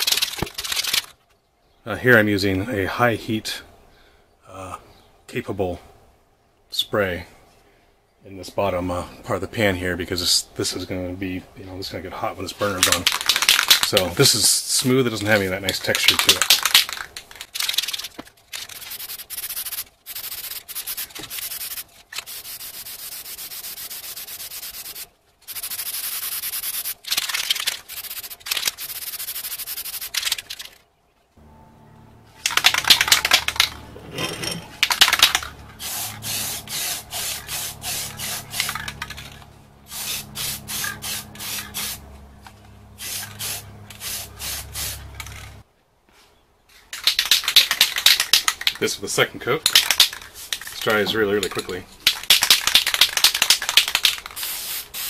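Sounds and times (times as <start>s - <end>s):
spray paint can hissing: 12.8s - 14.0s, 16.0s - 17.0s, 17.6s - 30.6s, 32.4s - 33.8s, 34.8s - 42.1s, 43.0s - 45.6s, 47.0s - 48.8s, 49.7s - 51.0s, 52.0s - 55.0s.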